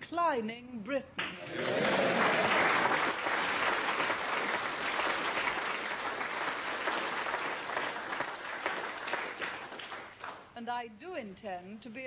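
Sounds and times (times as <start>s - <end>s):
audience applauding: 1.3s - 10.5s.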